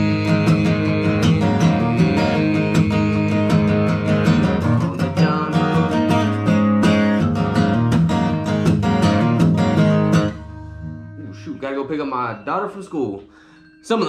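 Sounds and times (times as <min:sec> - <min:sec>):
acoustic guitar strummed: 0:00.0 - 0:14.0.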